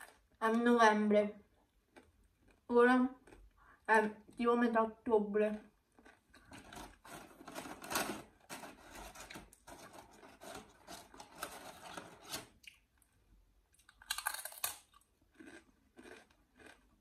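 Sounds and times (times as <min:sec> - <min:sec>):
paper packaging rustling: 0:06.4 - 0:12.6.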